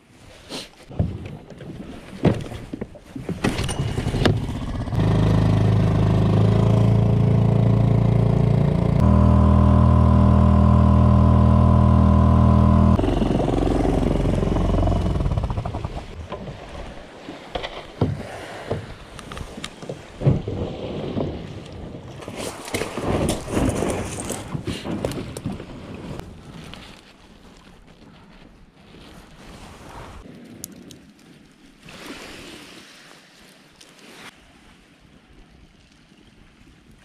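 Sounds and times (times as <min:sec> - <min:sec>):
outboard motor running: 0:03.6 - 0:16.2.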